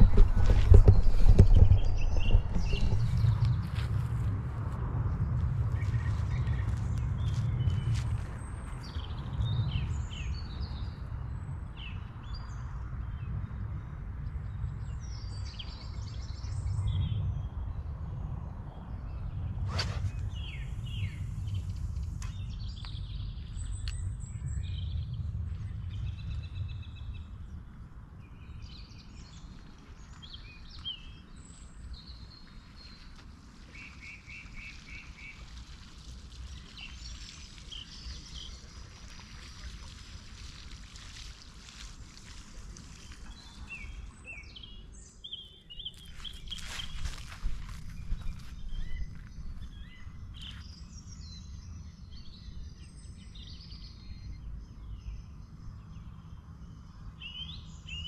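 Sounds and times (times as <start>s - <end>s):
wind rumble on microphone: 0.0s - 58.0s
fishing rod swish: 19.6s - 20.4s
small birds chirping: 19.7s - 27.3s, 28.2s - 58.0s.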